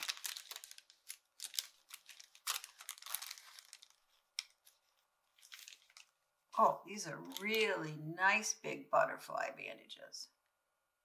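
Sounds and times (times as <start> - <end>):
paper wrapper crinkling and tearing: 0.0 - 6.2, 7.2 - 7.8.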